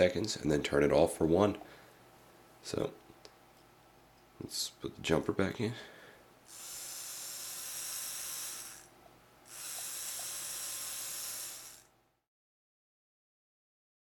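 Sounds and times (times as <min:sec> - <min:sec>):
small motor whirring: 0:06.5 - 0:08.9, 0:09.5 - 0:11.9.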